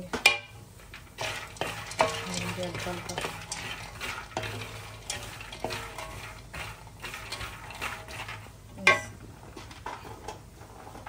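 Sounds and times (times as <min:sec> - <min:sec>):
light sizzle: 0:00.0 - 0:11.0
nuts scraping against metal pan: 0:00.0 - 0:11.0.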